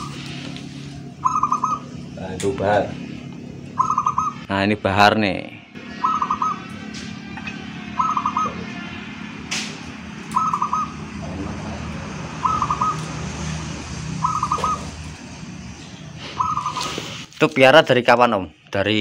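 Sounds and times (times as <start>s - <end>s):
dove cooing: 1.2s - 2.0s, 8.0s - 8.6s, 10.4s - 11.3s, 12.4s - 13.2s, 14.2s - 15.1s, 16.2s - 17.2s.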